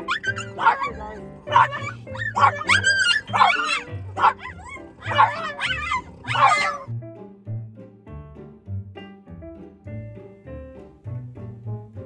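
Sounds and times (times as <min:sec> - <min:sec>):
dog yelping and whining: 0:00.0 - 0:06.9
background music: 0:00.0 - 0:12.0.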